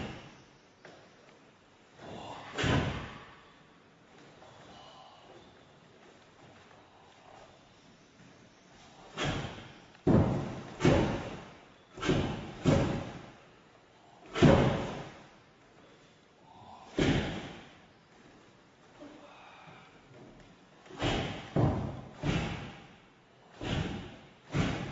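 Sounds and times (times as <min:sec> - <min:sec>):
barefoot thuds on wooden floor: 0:09.2 - 0:13.3, 0:20.9 - 0:22.9, 0:23.6 - 0:24.9.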